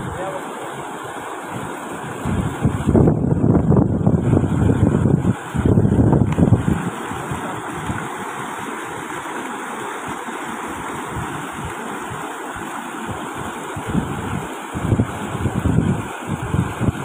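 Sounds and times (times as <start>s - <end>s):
floodwater rushing: 0.0s - 17.0s
wind buffeting microphone: 1.5s - 9.1s, 10.7s - 12.3s, 13.1s - 17.0s.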